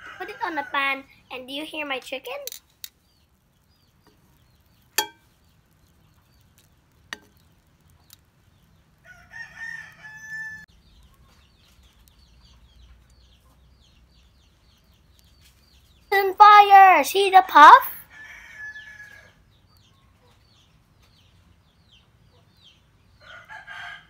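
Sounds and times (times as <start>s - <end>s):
rooster crowing: 9.0s - 10.7s, 18.0s - 19.4s, 23.2s - 24.0s.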